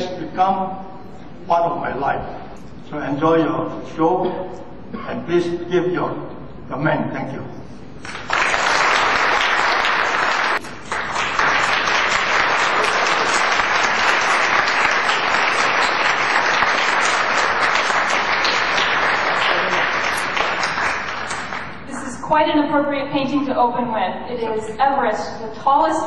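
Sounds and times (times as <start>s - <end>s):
audience applauding: 8.0s - 21.9s.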